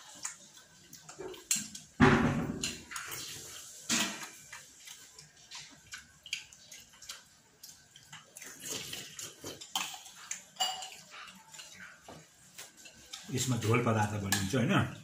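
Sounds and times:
metal spoon clinking in bowl: 9.6s - 11.0s.

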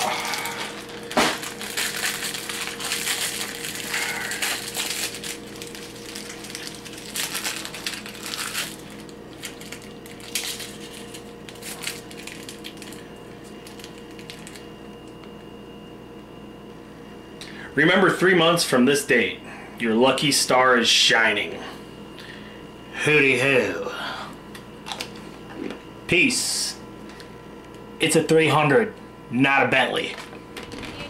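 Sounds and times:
plastic bag crinkling: 0.0s - 14.7s
cookie crunching: 0.0s - 15.3s
fortune cookie cracking: 0.0s - 15.3s.

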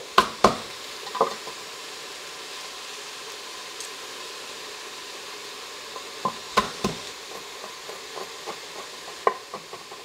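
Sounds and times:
vegetables sizzling in a pot: 0.0s - 10.0s
sharp knocks: 0.2s - 0.7s, 6.2s - 10.0s.

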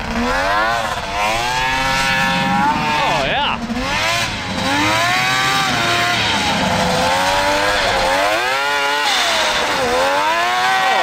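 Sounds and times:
two-stroke engine revving: 0.0s - 11.0s.

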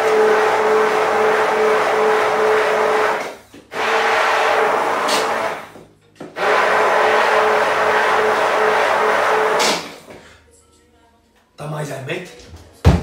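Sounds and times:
electric hand blender whine: 0.0s - 10.0s.

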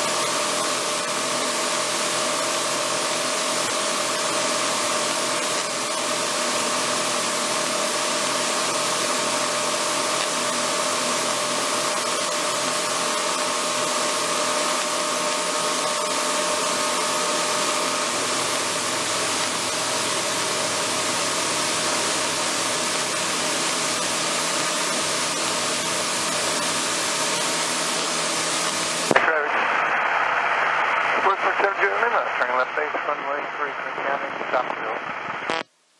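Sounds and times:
aircraft engine drone: 0.0s - 35.6s.

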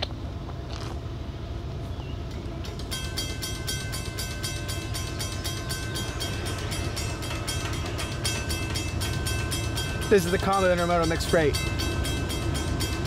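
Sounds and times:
crossing bell ringing: 2.7s - 13.0s.

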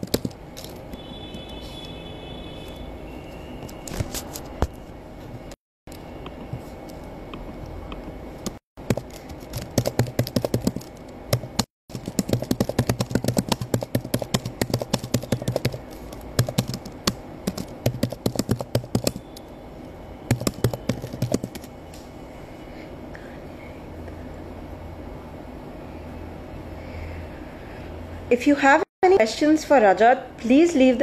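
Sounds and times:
typing on a keyboard: 0.0s - 0.9s, 8.5s - 19.5s, 20.3s - 21.7s.

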